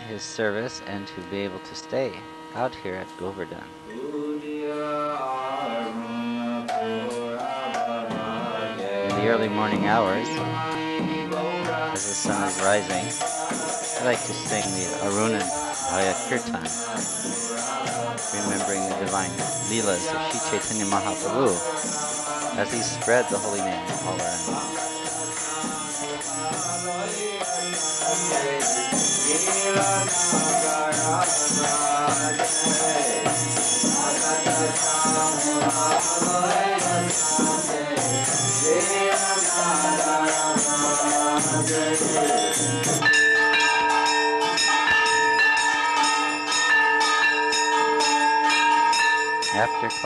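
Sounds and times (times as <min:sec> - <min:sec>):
man singing devotional song: 0:00.0 - 0:50.0
temple bells ringing: 0:12.0 - 0:25.5, 0:38.3 - 0:50.0
small cymbals jingling: 0:12.0 - 0:50.0.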